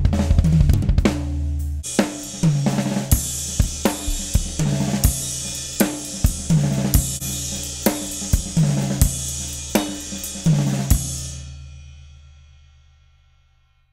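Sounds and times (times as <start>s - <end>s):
drum kit groove: 0.0s - 12.3s
cymbals: 1.8s - 13.5s
kick drum: 4.0s - 4.7s.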